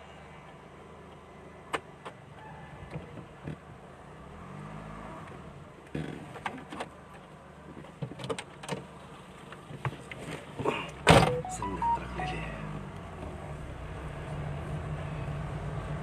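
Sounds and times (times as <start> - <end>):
car running at low speed: 0.0 - 16.0
short beeps: 11.2 - 12.8.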